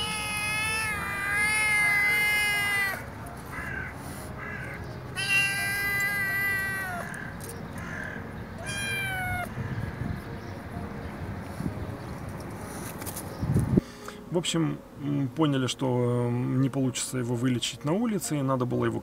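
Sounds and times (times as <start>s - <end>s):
kitten meowing: 0.0s - 3.1s, 5.1s - 7.2s, 8.6s - 9.5s.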